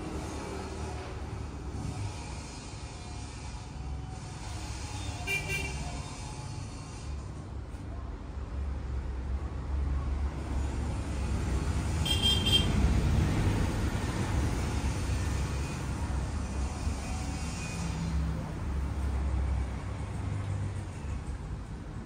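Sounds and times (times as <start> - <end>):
road traffic rumbling: 0.0 - 22.0
high-pitched horn toot: 5.0 - 6.2.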